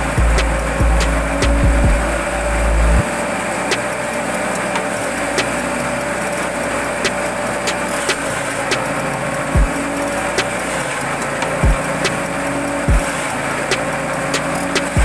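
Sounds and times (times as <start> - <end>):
heavy low rumbling: 0.0 - 3.0
forage chopper whining: 0.0 - 15.0.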